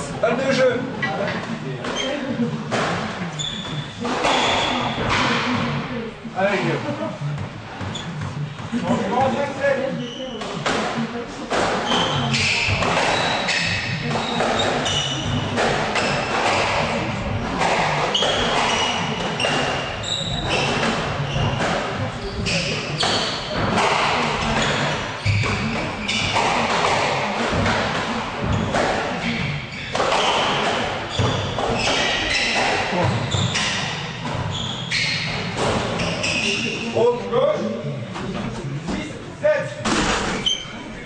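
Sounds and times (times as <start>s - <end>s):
shoes squeaking on wooden floor: 0.9s - 5.9s, 7.2s - 10.8s, 11.6s - 37.2s, 40.2s - 41.0s
squash ball thudding: 10.4s - 34.5s, 39.8s - 40.4s.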